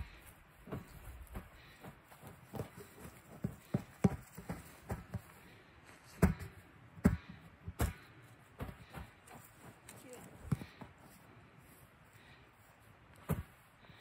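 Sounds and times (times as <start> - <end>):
exercise ball thumping on grass: 6.2 - 9.1, 13.2 - 13.6.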